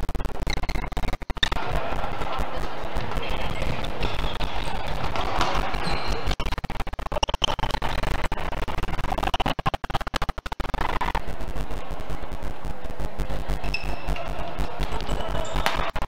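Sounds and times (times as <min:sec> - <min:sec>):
rackets hitting shuttlecock: 0:13.7 - 0:15.9.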